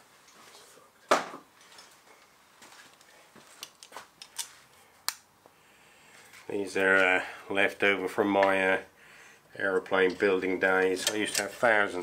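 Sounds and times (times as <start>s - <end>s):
metal fastener clicks: 10.8s - 11.6s.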